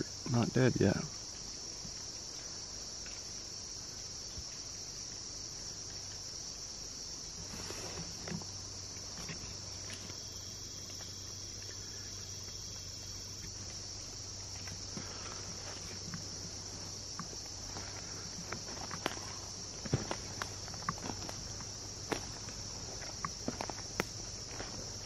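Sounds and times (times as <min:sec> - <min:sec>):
insects buzzing: 0:00.0 - 0:25.0
footsteps in dry leaves: 0:16.6 - 0:25.0.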